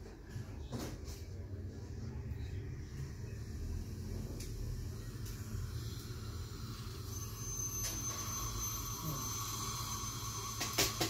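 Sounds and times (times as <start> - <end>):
low equipment hum: 0.0 - 11.0
dental drill whine: 3.3 - 11.0.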